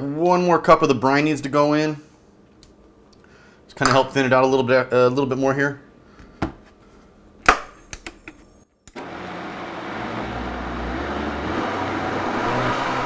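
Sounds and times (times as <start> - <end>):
blender motor whirring: 9.0 - 13.0.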